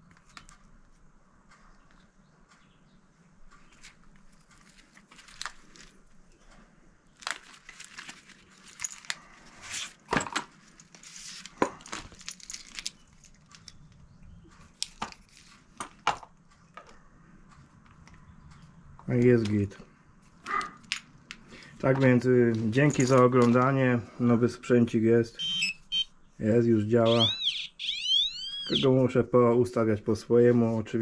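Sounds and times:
packaging crinkling and rustling: 3.8s - 6.1s, 7.1s - 13.8s.

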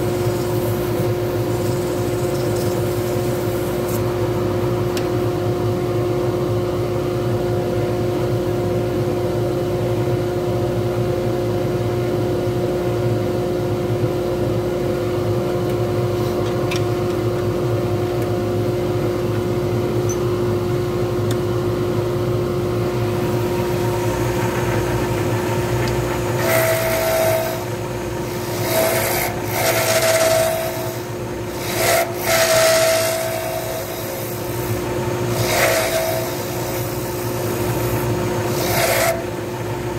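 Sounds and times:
turning tool scraping wood: 0.0s - 4.1s, 24.2s - 27.7s, 28.4s - 31.0s, 31.6s - 34.7s, 35.3s - 39.3s
wood lathe humming: 0.0s - 4.1s, 23.0s - 39.9s.

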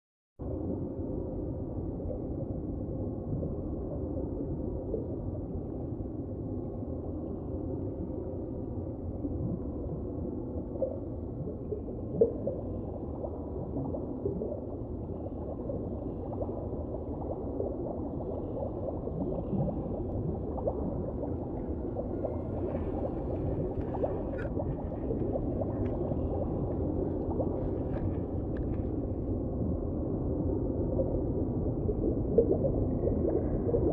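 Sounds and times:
muffled underwater rush: 0.4s - 33.9s
faint gurgling: 9.3s - 29.9s.

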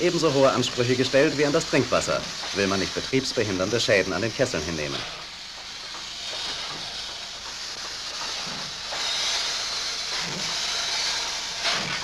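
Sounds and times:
steam locomotive hissing: 0.0s - 12.0s.

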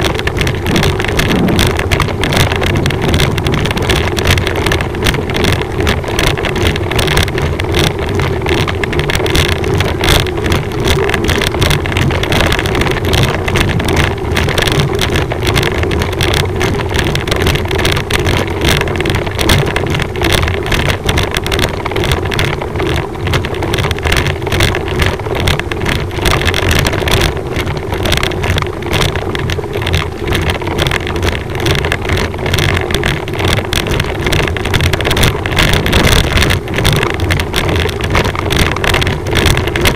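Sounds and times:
vehicle engine droning: 0.0s - 2.2s
wind rushing over microphone: 0.0s - 39.9s.

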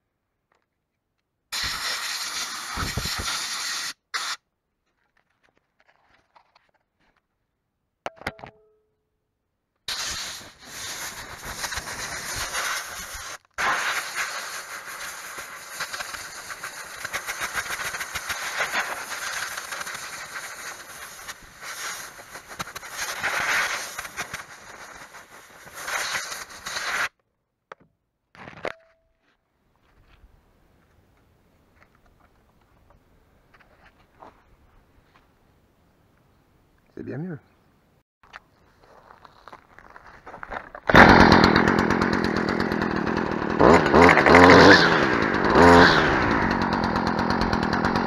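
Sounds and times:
compressed air blow gun blasting: 1.6s - 4.4s, 9.9s - 27.1s, 40.9s - 48.0s.

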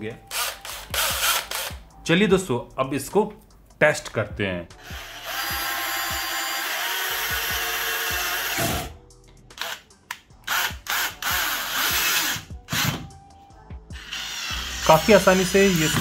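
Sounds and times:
cordless drill driving screws: 0.3s - 1.8s, 4.9s - 8.9s, 9.6s - 9.8s, 10.5s - 13.1s, 14.0s - 16.0s.

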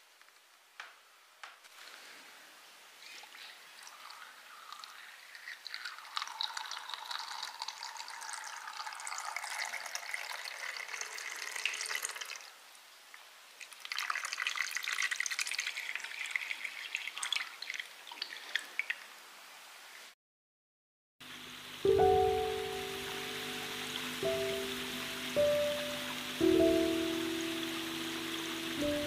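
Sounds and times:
water trickling into pool: 2.9s - 19.3s, 21.6s - 29.0s
water drips: 3.0s - 19.2s, 21.8s - 29.0s.

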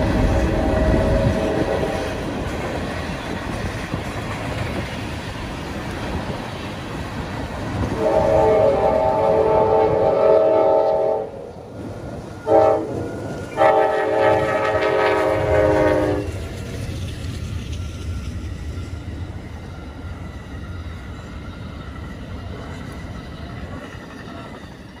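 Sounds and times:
train horn blasts: 0.0s - 2.3s, 7.8s - 11.5s, 12.4s - 16.4s.

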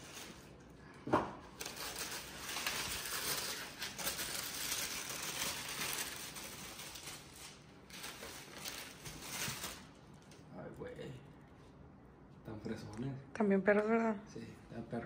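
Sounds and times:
tissue paper rustling: 0.0s - 0.6s, 1.6s - 10.4s.

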